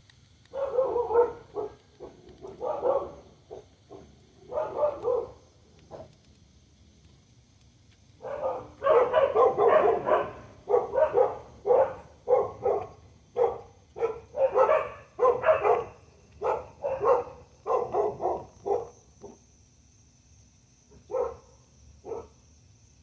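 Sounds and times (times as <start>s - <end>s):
dog barking: 0.5s - 6.1s, 8.2s - 19.4s, 20.9s - 22.4s.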